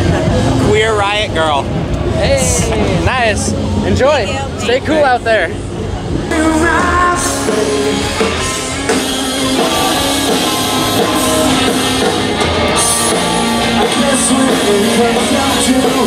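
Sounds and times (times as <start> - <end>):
rock band playing live: 0.0 - 16.0
person singing: 6.3 - 8.9, 12.8 - 16.0.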